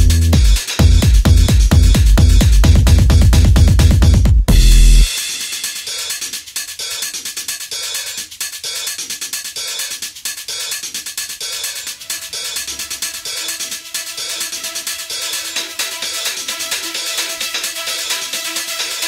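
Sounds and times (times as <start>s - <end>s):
heavy bass hit: 0.0s - 5.2s
electronic background music: 0.0s - 19.0s.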